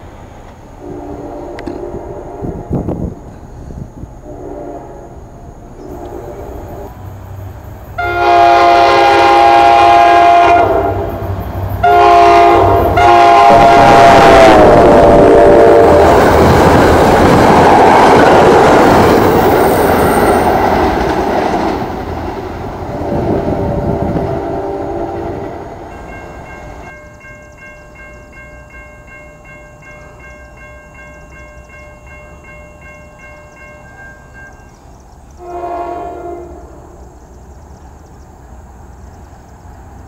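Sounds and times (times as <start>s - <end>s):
train rushing past: 0.0s - 40.0s
train horn: 0.8s - 3.2s, 4.2s - 7.0s, 8.0s - 16.3s, 22.9s - 25.8s, 35.4s - 37.1s
level crossing warning bell: 25.9s - 34.9s.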